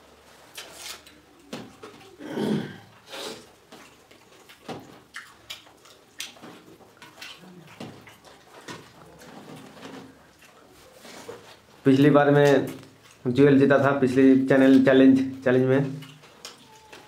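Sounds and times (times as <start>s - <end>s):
chewing: 0.5s - 2.2s, 2.8s - 13.8s, 14.5s - 17.0s.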